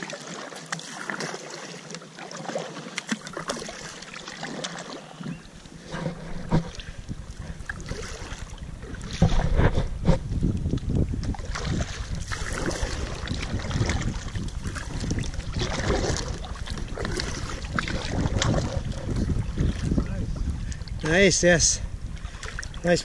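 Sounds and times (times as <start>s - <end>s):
kayak paddle splashing in water: 0.0s - 21.0s, 22.1s - 22.8s
wind buffeting microphone: 5.8s - 23.0s.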